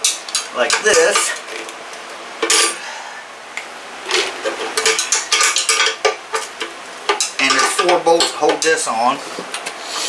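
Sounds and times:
wrench clinking on bolts: 0:07.1 - 0:08.8.

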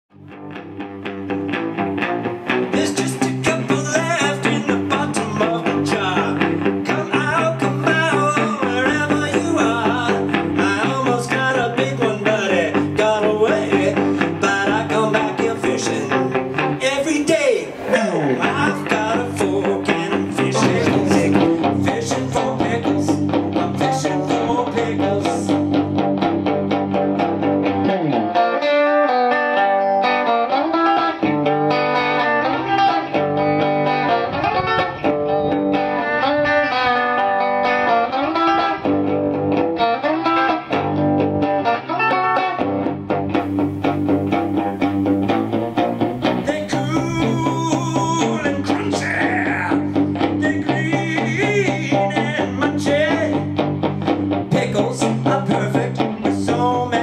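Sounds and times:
electric guitar bluesy riff: 0:00.1 - 0:57.0
man singing: 0:02.7 - 0:26.1, 0:46.3 - 0:53.6, 0:54.4 - 0:57.0.

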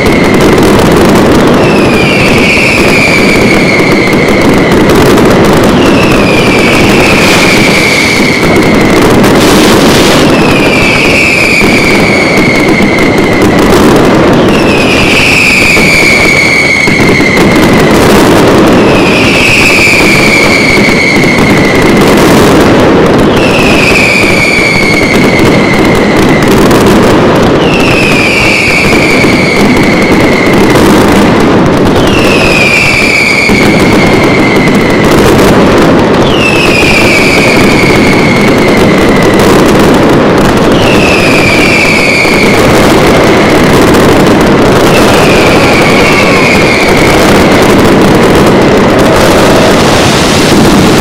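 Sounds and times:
fireworks barrage: 0:00.0 - 0:51.0
high falling whistle: 0:40.9 - 0:42.6.

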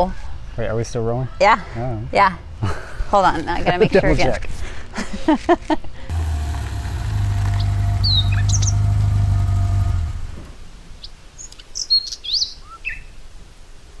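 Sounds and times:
steady low hum: 0:06.1 - 0:10.6
birds chirping: 0:06.1 - 0:13.1.

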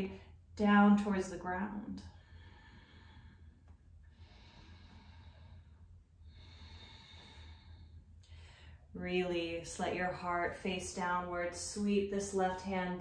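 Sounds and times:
steady low hum: 0:00.0 - 0:13.0
faint slow breathing: 0:02.0 - 0:09.0.

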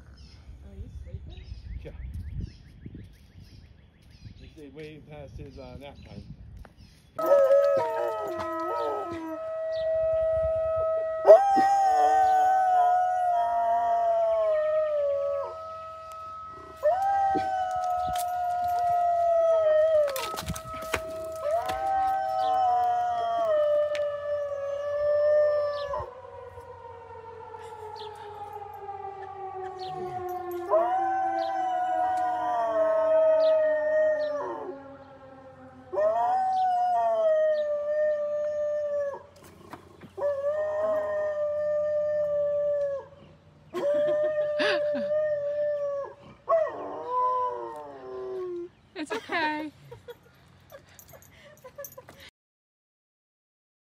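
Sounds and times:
dog howling: 0:07.2 - 0:34.8, 0:40.2 - 0:43.1
siren wail: 0:07.2 - 0:39.4, 0:40.2 - 0:43.1, 0:43.8 - 0:48.6.

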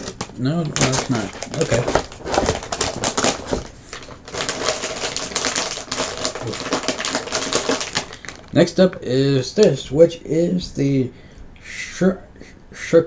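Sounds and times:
plastic packaging crinkling: 0:00.0 - 0:09.0.

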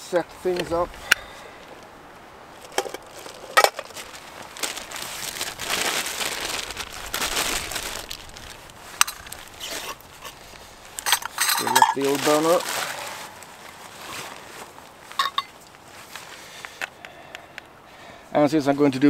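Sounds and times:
plastic pouch crinkling: 0:02.6 - 0:15.8.

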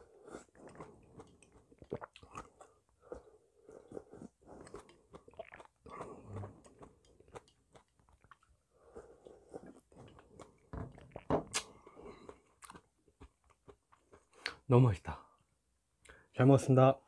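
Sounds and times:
man chewing noodles: 0:00.0 - 0:14.6.

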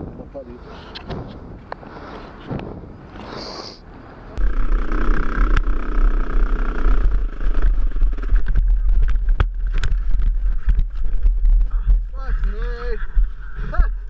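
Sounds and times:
wind rumble on microphone: 0:00.0 - 0:03.3, 0:04.4 - 0:14.0
dirt bike engine running: 0:04.4 - 0:14.0.

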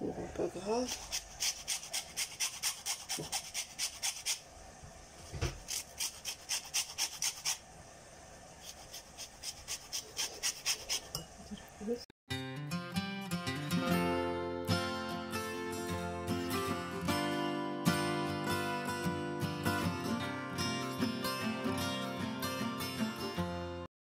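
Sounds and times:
rind grating on metal grater: 0:00.7 - 0:04.4, 0:05.6 - 0:07.6, 0:08.6 - 0:11.3
acoustic guitar music: 0:12.3 - 0:23.9.

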